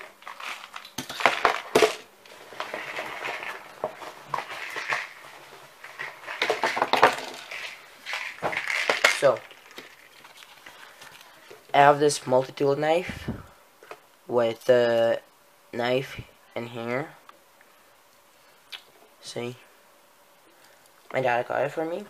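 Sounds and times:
tackle boxes and tools clattering: 0:00.0 - 0:10.0.

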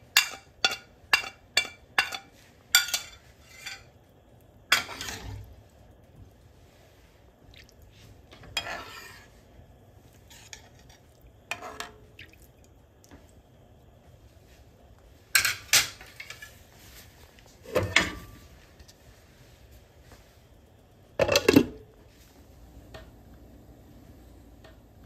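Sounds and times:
metal spoon scraping a pan: 0:00.1 - 0:04.0, 0:04.7 - 0:05.5, 0:08.3 - 0:09.4, 0:10.1 - 0:12.0, 0:15.4 - 0:17.1.

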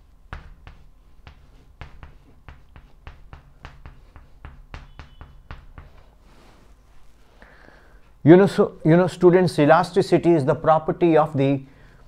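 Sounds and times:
chalk tapping and scraping on blackboard: 0:00.3 - 0:06.6.

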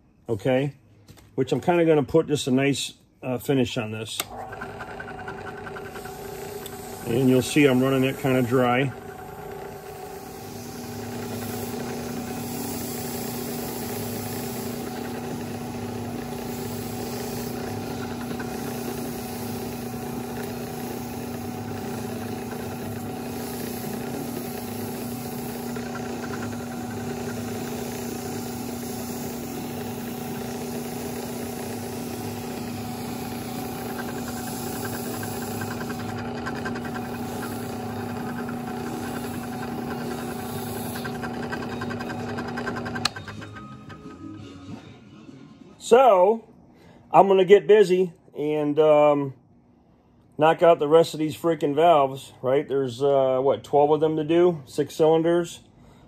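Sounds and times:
drill press motor humming: 0:04.2 - 0:44.4
scrubbing pad hiss: 0:05.8 - 0:43.6.

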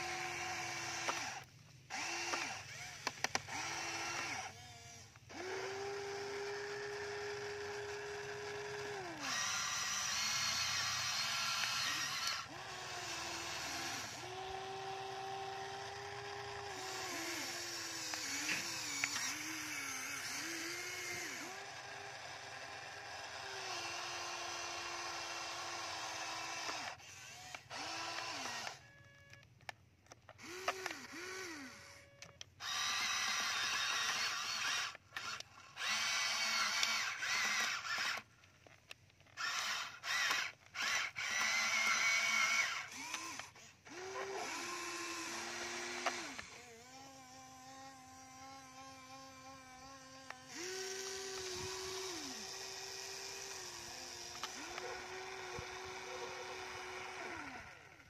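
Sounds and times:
toy excavator motors whining: 0:00.0 - 0:58.0.

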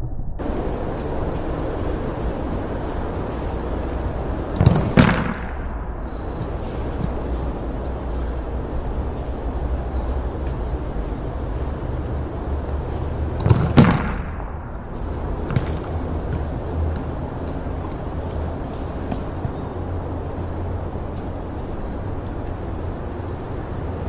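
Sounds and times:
low rumble: 0:00.0 - 0:13.4, 0:14.1 - 0:18.6
ball bouncing: 0:03.8 - 0:08.4, 0:13.0 - 0:21.7
football slamming into concrete wall: 0:04.6 - 0:05.6, 0:13.4 - 0:14.4.

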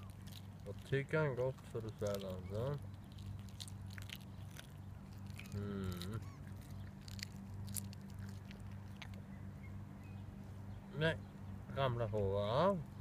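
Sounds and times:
puppy chewing fish: 0:00.0 - 0:09.4
teeth clicking: 0:01.8 - 0:09.2.

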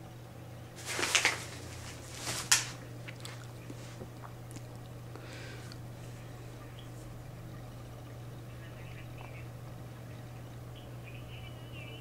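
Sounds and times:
steady low hum: 0:00.0 - 0:12.0
dog chewing: 0:03.0 - 0:05.0.

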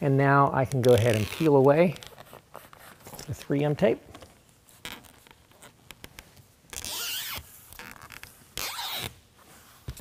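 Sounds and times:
release liner peeling off tape: 0:04.7 - 0:09.2.

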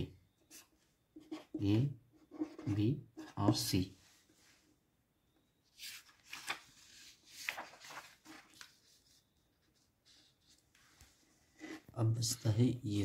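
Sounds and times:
paper rustling and sliding: 0:05.7 - 0:11.9.

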